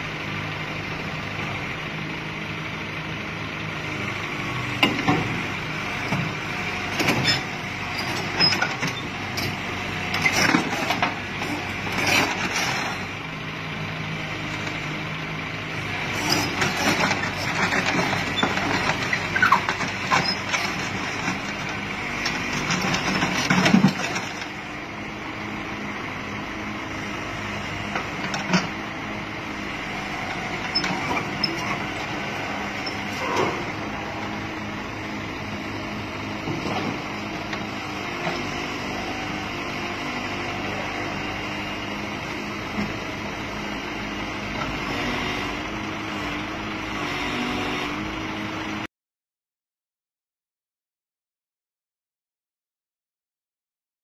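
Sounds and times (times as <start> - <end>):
diesel engine running: 0.0 - 48.9.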